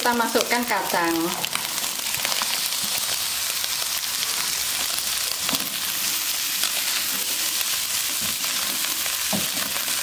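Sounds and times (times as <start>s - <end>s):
beans sizzling in hot oil: 0.0s - 10.0s
spatula knocking a wok: 9.2s - 9.8s.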